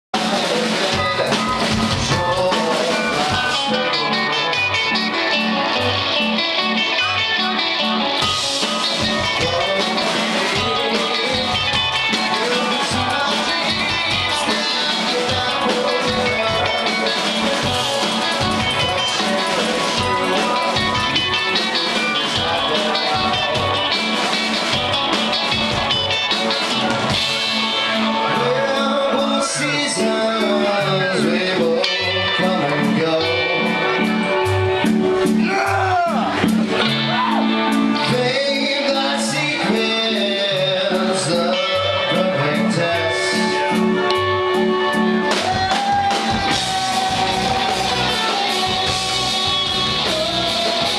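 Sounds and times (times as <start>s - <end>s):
live rock band playing: 0.1s - 50.9s.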